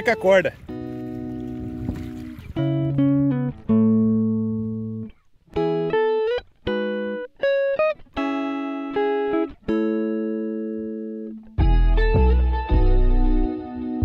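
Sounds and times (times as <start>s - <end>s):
guitar playing slow chords: 0.0s - 14.0s.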